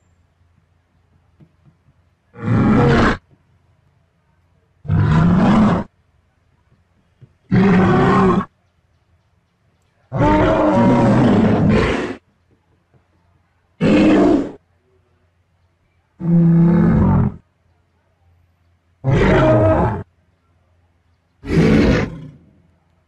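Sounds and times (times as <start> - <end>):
dinosaur roars: 4.8 - 5.9, 10.1 - 12.2, 13.8 - 14.6, 16.2 - 17.4, 19.0 - 20.1, 21.4 - 22.5.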